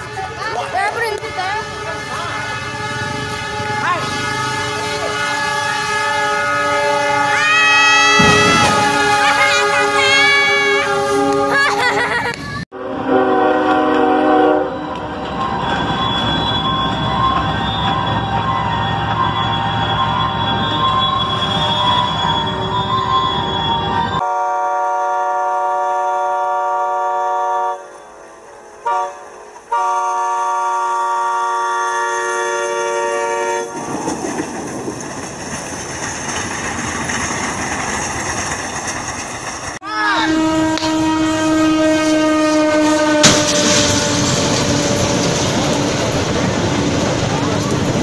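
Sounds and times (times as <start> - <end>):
locomotive air horn: 0.0 - 11.9, 12.7 - 15.2, 24.2 - 33.8, 39.9 - 46.0
train running: 0.0 - 48.0
loud crash: 8.1 - 9.3, 43.2 - 46.2.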